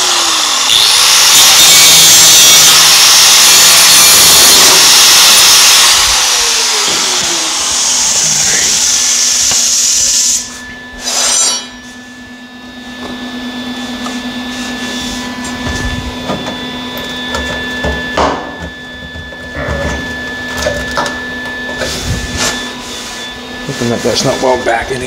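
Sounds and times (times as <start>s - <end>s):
cut-off tool cutting sheet metal: 0.0s - 11.8s
steady hum: 5.9s - 25.0s.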